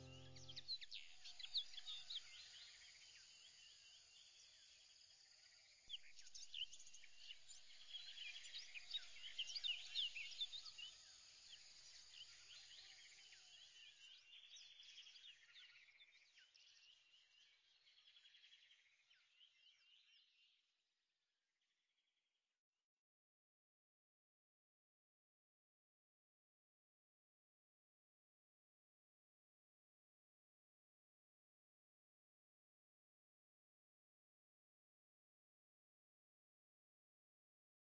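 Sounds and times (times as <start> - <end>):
faint birdsong chirps: 0.0 - 20.8.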